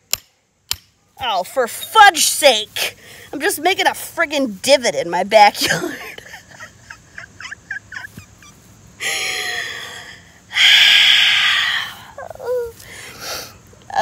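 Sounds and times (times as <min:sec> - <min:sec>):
woman groaning: 0:09.0 - 0:12.8
woman sighing: 0:11.4 - 0:13.5.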